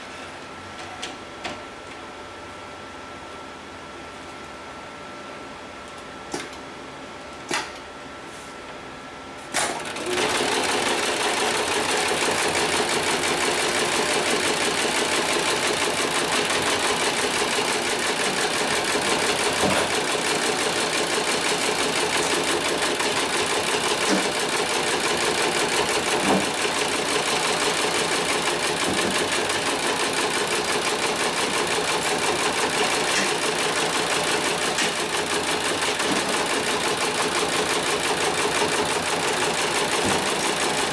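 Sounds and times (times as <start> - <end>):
sewing machine running: 9.6 - 40.9.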